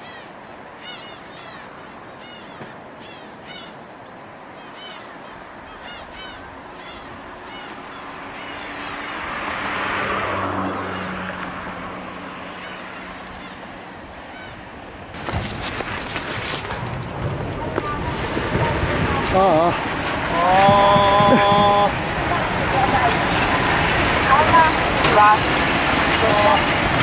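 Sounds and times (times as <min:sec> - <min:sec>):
birds chirping: 0:00.0 - 0:10.0, 0:12.0 - 0:16.7
rushing noise: 0:00.0 - 0:27.0
wind buffeting microphone: 0:00.0 - 0:27.0.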